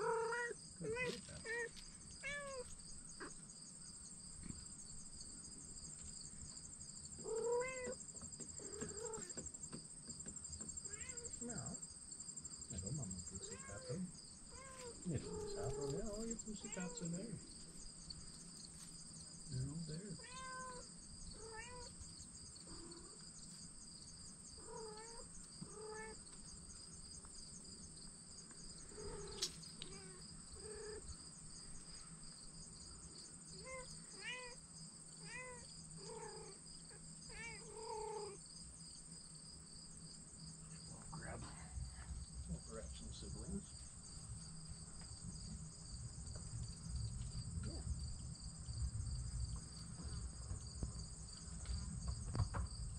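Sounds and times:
kittens mewing: 0.0s - 3.4s, 7.2s - 8.0s, 8.6s - 9.4s, 12.8s - 17.4s, 20.1s - 22.0s, 24.6s - 26.2s, 28.8s - 31.1s, 33.6s - 34.6s, 35.2s - 38.4s
crickets chirping: 0.0s - 52.9s.

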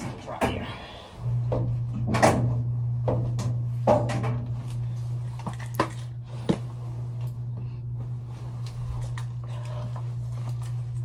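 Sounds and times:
washer and dryer doors and drums clunking: 0.0s - 6.7s
steady low hum: 0.0s - 11.0s.

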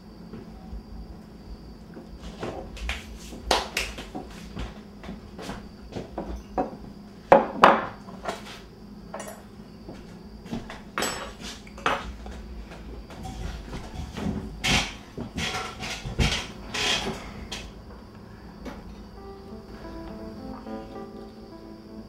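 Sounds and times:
dishes and utensils clinking: 11.0s - 12.1s.

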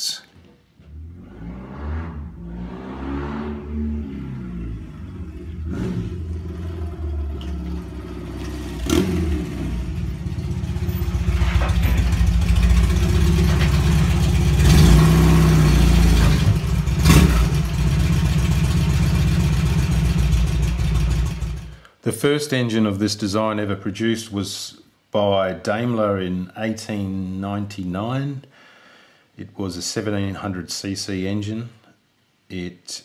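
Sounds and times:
motorcycle engine thrumming: 5.6s - 15.2s, 15.9s - 21.7s.

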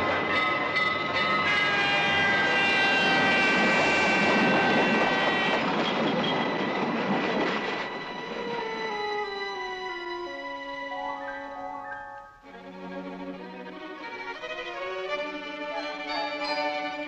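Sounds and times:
cartoon music chord: 10.8s - 12.6s.

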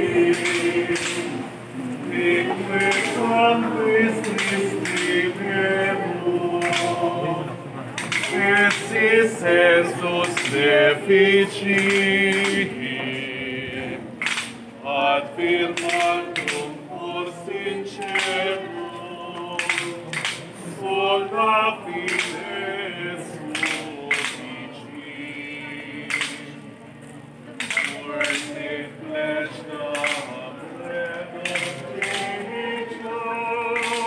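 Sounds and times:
group singing a hymn: 0.0s - 34.0s.

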